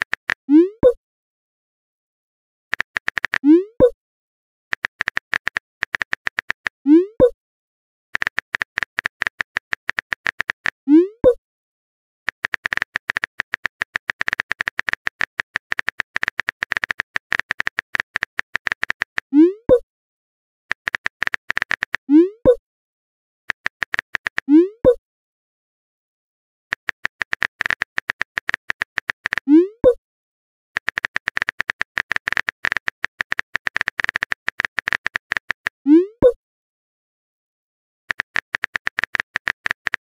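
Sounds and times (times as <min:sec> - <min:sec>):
phone keyboard typing clicks: 0:00.0 - 0:01.0, 0:02.7 - 0:03.9, 0:04.7 - 0:07.4, 0:08.2 - 0:11.3, 0:12.3 - 0:19.8, 0:20.7 - 0:22.6, 0:23.5 - 0:25.0, 0:26.7 - 0:30.0, 0:30.8 - 0:36.4, 0:38.1 - 0:40.0.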